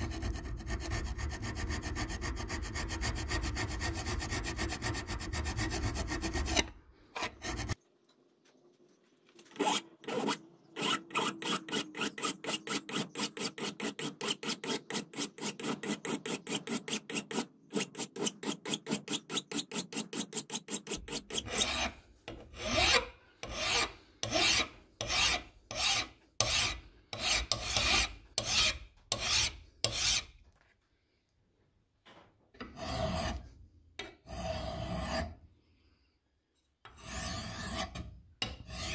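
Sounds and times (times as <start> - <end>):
hand file rasping on metal: 0.0 - 7.8, 9.6 - 30.3, 36.9 - 38.9.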